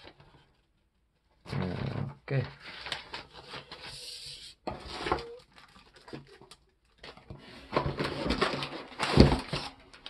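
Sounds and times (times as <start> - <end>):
packing paper rustling and crackling: 2.4 - 10.0.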